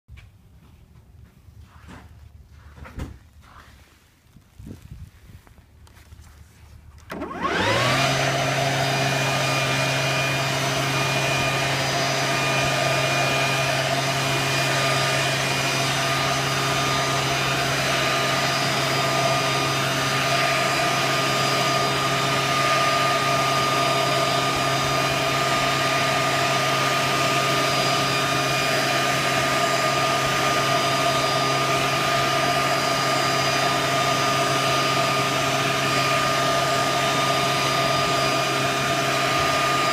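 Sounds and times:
electric leaf blower whining: 0:07.0 - 0:39.9.

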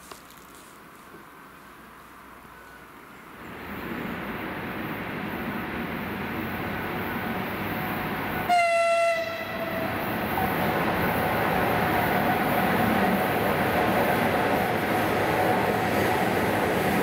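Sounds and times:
freight train rumbling: 0:00.8 - 0:17.0
locomotive horn blast: 0:08.5 - 0:09.9.

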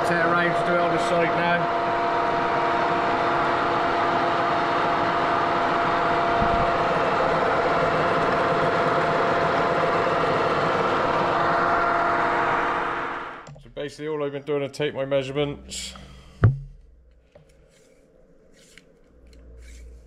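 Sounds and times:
machine running tones: 0:15.0 - 0:17.0.

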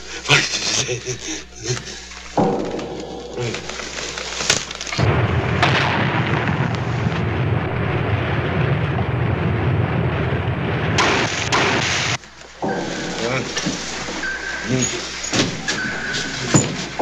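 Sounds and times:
heavy low rumble: 0:02.3 - 0:17.0
depth charge blasts: 0:04.9 - 0:16.1.

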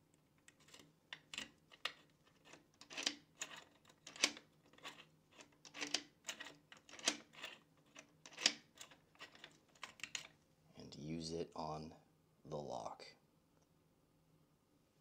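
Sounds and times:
key clicking and scraping in lock: 0:00.4 - 0:10.4.

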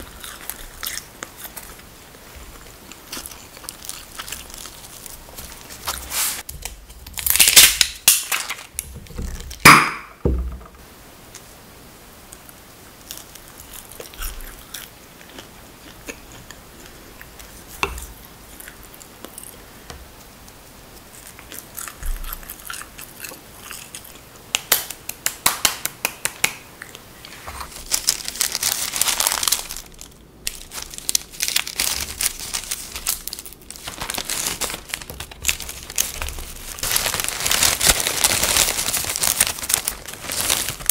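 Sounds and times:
bread crust crackling: 0:00.0 - 0:09.9, 0:27.6 - 0:40.9
paper rustling: 0:03.8 - 0:09.6, 0:27.4 - 0:40.9.

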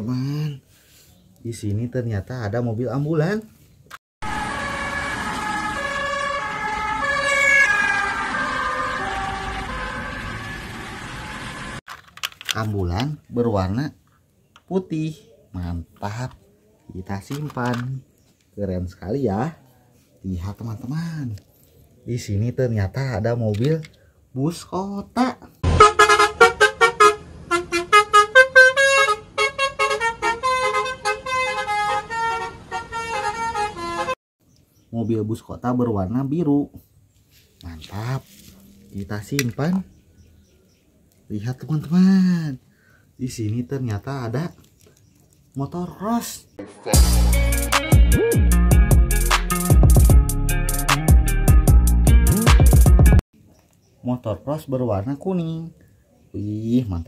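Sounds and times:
ambulance siren: 0:04.2 - 0:11.8.

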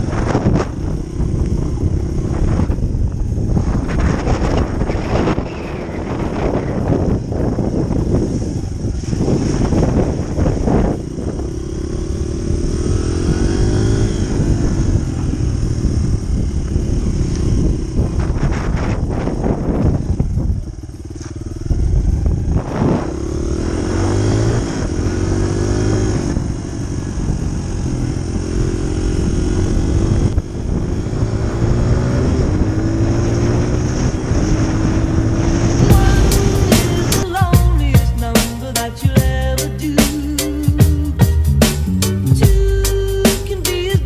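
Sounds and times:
dirt bike engine revving: 0:00.0 - 0:44.0.

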